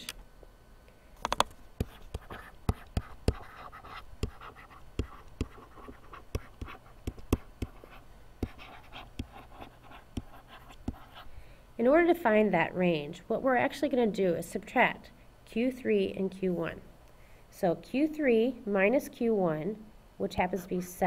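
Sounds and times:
stylus tapping on pen tablet: 1.2 - 11.2
stylus scratching: 1.3 - 11.3.

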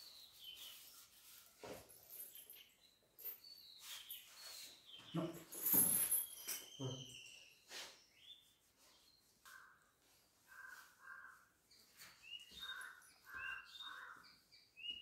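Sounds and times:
high bird chirps: 3.4 - 8.5, 11.8 - 15.0
birds calling harshly: 9.5 - 15.0.

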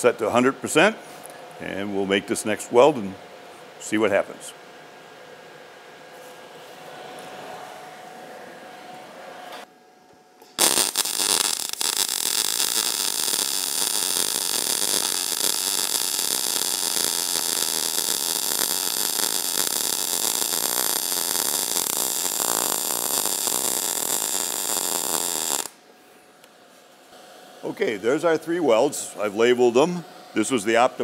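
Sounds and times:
welding arc crackling: 10.5 - 25.8.

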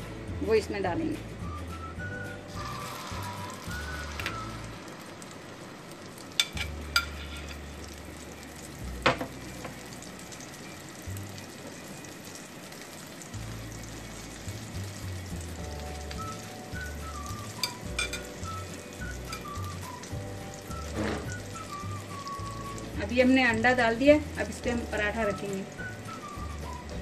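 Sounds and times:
egg sizzling in hot oil: 1.3 - 27.0
metal spoon tapping pan: 6.4 - 7.2, 17.6 - 18.4, 19.3 - 19.5.

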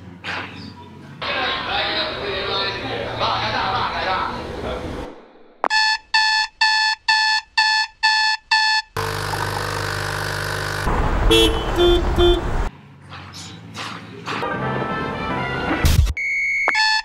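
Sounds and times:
alarm clock beeping: 5.7 - 9.0
coffee machine running: 9.0 - 10.9.

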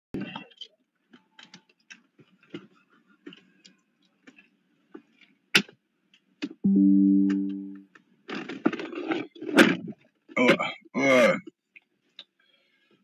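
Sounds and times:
loud steady pitched chord tone: 6.7 - 7.8.

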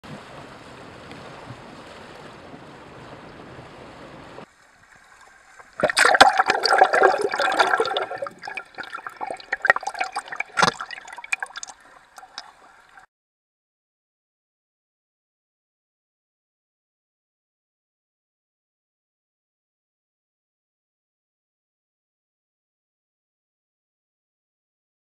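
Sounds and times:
water splashing and gurgling: 0.0 - 13.1
water rushing hiss: 0.2 - 13.0
water slapping camera: 5.2 - 13.1.

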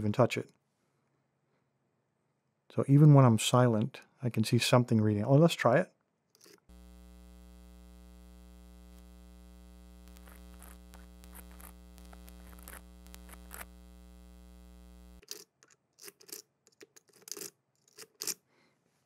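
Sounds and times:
lock pick scraping and clicking: 6.4 - 6.6, 15.2 - 18.4
electrical hum: 6.7 - 15.2.

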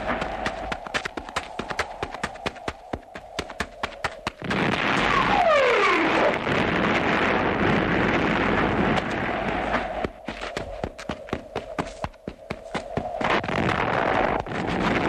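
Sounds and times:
running footsteps: 0.0 - 4.6, 8.8 - 15.0
loud rumbling explosion: 4.4 - 10.3, 13.2 - 15.0.

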